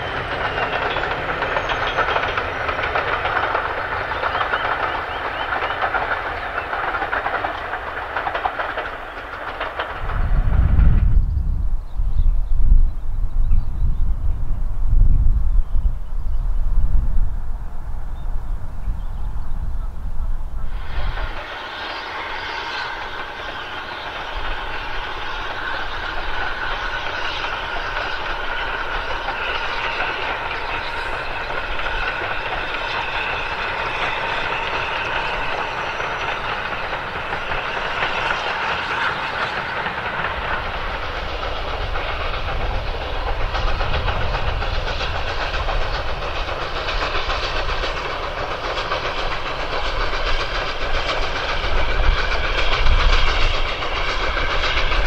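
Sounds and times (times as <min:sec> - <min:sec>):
steam hiss: 0:00.0 - 0:10.7, 0:19.3 - 0:55.0
steam locomotive running: 0:00.0 - 0:55.0
wheels on rails: 0:00.0 - 0:55.0
deep rumble: 0:10.0 - 0:20.7.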